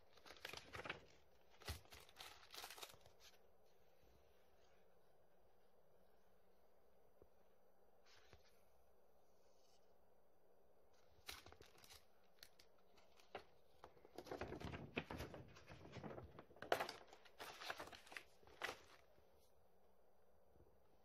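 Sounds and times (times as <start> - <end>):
paper map rustling and crinkling: 0.0 - 3.5, 8.0 - 8.6, 10.9 - 19.2.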